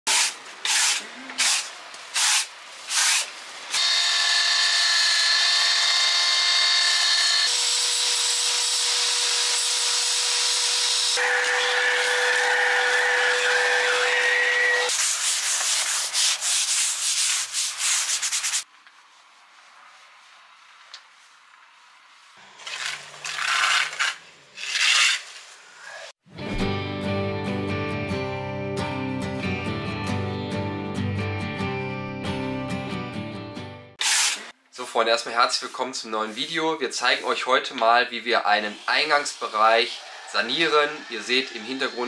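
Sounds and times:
power tools whining: 3.7s - 14.9s.

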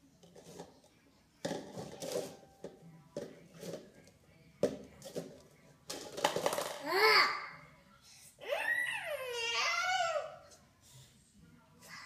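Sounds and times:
cups clattering together: 1.4s - 4.0s, 4.6s - 6.8s.

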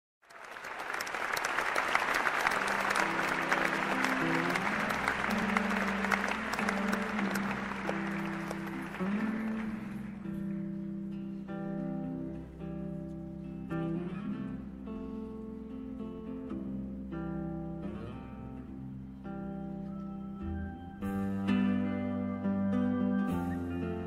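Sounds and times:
audience applause: 0.2s - 10.4s
guitar notes: 2.6s - 24.0s.

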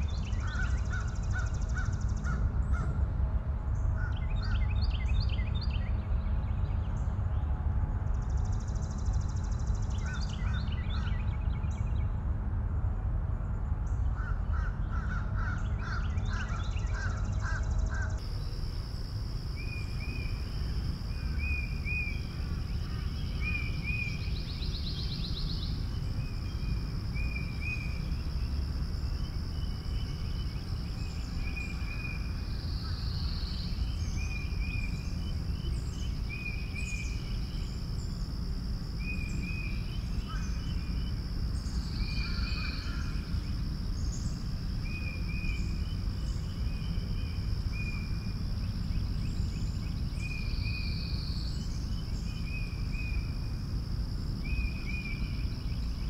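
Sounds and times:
low wind rumble: 0.0s - 56.0s
crow-like caws: 14.2s - 18.2s
high insect-like trill: 18.2s - 56.0s.

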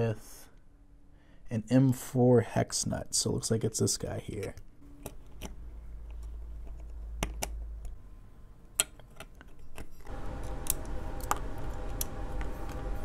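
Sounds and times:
low steady hum: 0.0s - 13.0s
clicks of small parts handled: 8.8s - 12.1s.

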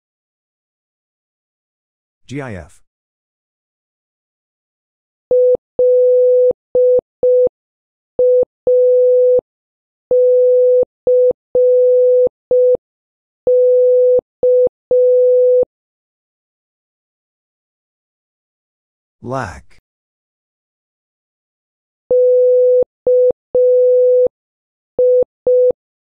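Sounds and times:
morse code beeps: 10.1s - 12.8s, 22.1s - 24.3s.

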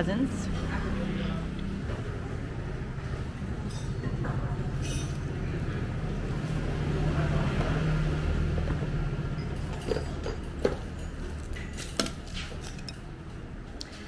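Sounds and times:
passing vehicle engine rumble: 0.0s - 11.8s
chopsticks clinking on bowl: 11.0s - 13.1s.

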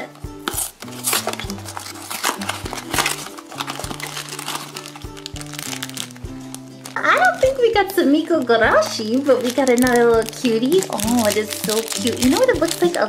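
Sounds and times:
background music: 0.0s - 13.0s
cardboard box ripping: 0.4s - 7.5s, 9.2s - 13.0s
wrapping crinkling: 0.4s - 13.0s.

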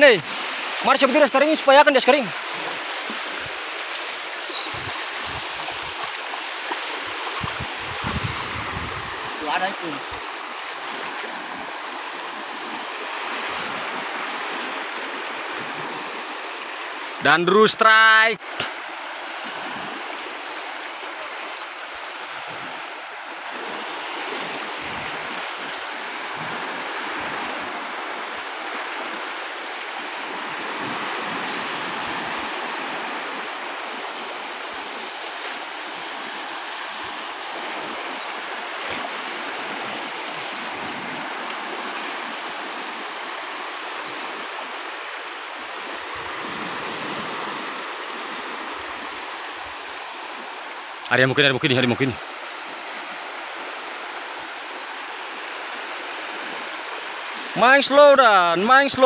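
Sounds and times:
waves washing over pebbles: 0.0s - 17.2s.

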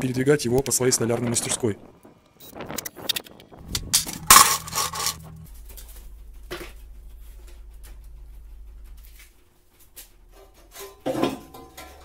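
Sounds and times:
low steady hum: 3.6s - 12.0s.

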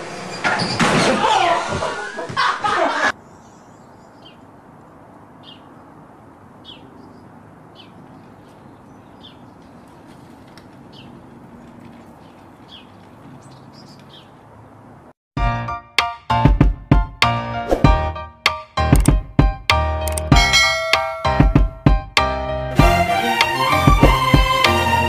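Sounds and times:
bird chirping: 3.2s - 4.5s, 5.4s - 6.0s, 6.6s - 10.0s, 10.9s - 14.5s
outdoor background hiss: 3.2s - 15.1s.

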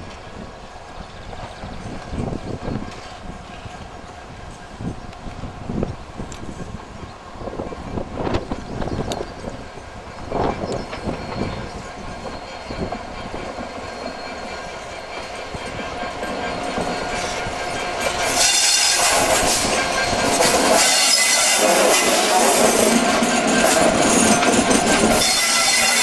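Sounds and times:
diesel locomotives passing: 0.0s - 26.0s.

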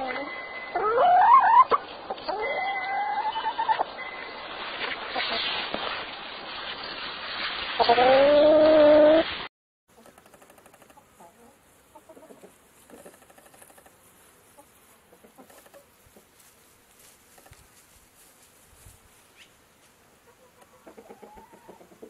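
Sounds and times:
chickens clucking: 0.0s - 4.0s, 9.9s - 16.5s, 19.4s - 22.0s.

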